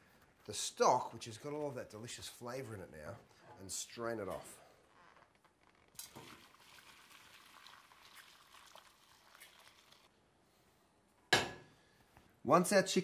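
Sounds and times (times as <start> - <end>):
liquid pouring through a sieve: 6.0 - 10.1.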